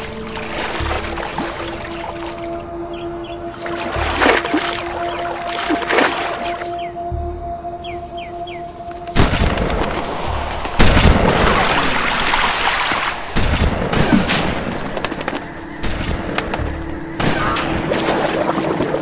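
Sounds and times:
music: 0.0 - 19.0
steady low drone: 0.0 - 19.0
loud booms with rushing noise: 9.2 - 12.6.

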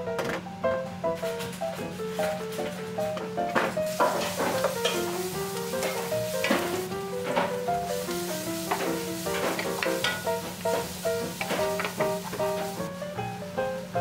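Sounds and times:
plucked background music: 1.2 - 14.0
food sizzling in hot oil: 3.8 - 14.0
spatula scraping pan: 3.9 - 12.8.

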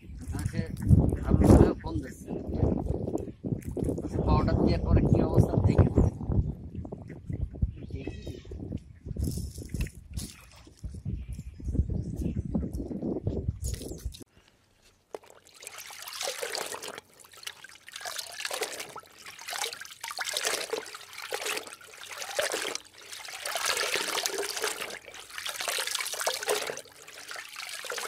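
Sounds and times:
rushing splashing water: 15.3 - 28.0.

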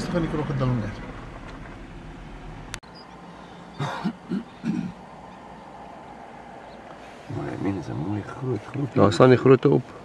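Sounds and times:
person coughing: 3.8 - 5.0.

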